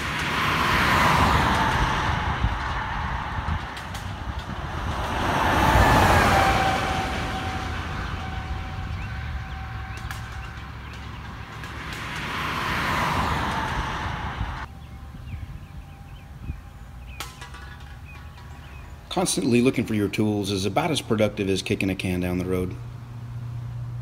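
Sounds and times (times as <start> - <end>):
road vehicles passing: 0.0 - 24.0.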